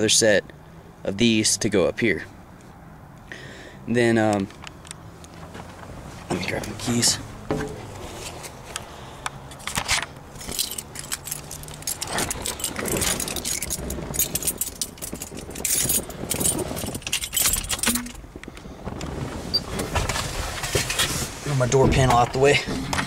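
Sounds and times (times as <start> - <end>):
keys jangling: 10.4 - 18.2.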